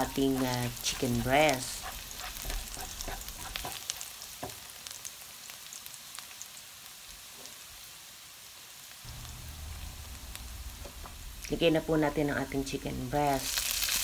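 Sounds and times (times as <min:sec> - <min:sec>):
spatula scraping wok: 0:00.0 - 0:04.2
garlic sizzling in hot oil: 0:00.0 - 0:14.0.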